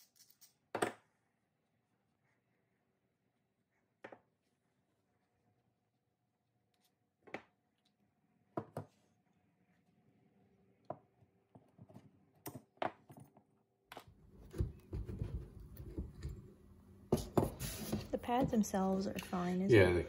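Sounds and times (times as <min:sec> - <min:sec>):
metal parts on wooden bench: 0:00.0 - 0:01.1.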